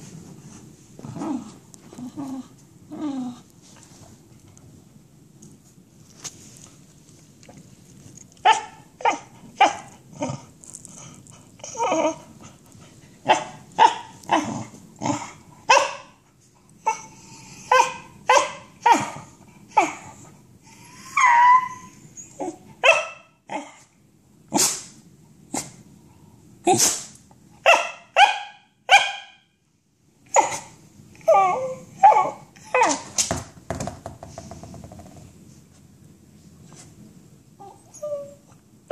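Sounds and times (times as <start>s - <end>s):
dog whining yelp: 8.4s - 10.4s, 11.6s - 12.3s, 20.9s - 23.8s, 30.3s - 33.2s, 37.6s - 38.9s
dog barking: 13.3s - 14.4s, 15.7s - 16.1s, 17.7s - 19.2s, 22.8s - 23.4s, 27.6s - 29.4s.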